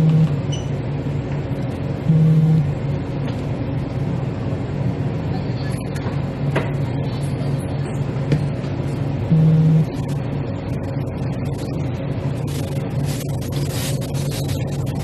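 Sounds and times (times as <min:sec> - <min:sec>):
brief low tone: 0:00.0 - 0:00.7
low background hum: 0:00.0 - 0:15.0.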